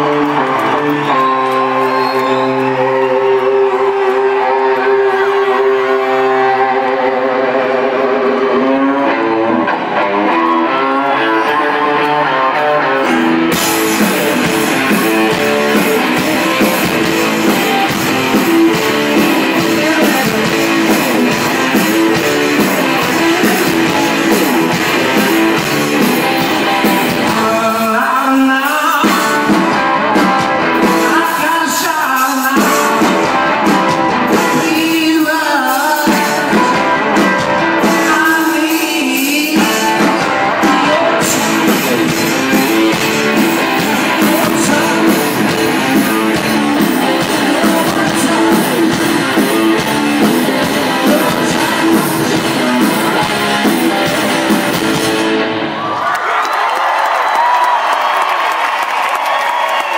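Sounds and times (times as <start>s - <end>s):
man singing: 0.0s - 9.6s, 10.3s - 55.1s
electric guitar: 0.0s - 59.9s
drums and cymbals: 13.2s - 27.7s, 28.9s - 55.4s.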